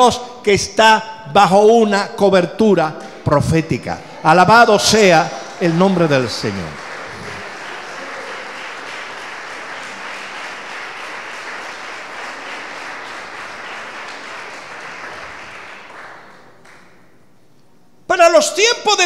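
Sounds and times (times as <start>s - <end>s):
congregation applauding: 3.8s - 17.1s.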